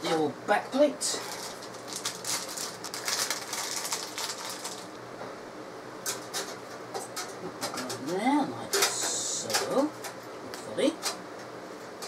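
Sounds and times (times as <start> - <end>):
rustling: 1.2 - 5.0.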